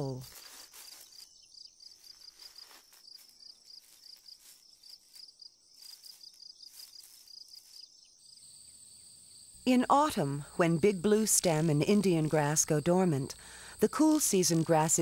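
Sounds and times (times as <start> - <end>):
insects chirping: 0.0 - 15.0
insect high buzz: 0.2 - 9.8.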